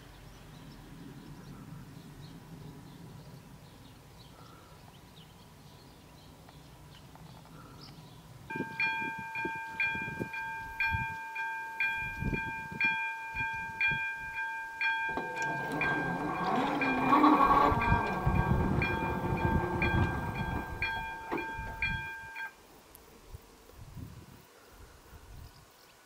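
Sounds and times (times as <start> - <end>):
level crossing warning bell: 8.5 - 22.6
rushing noise: 15.1 - 22.4.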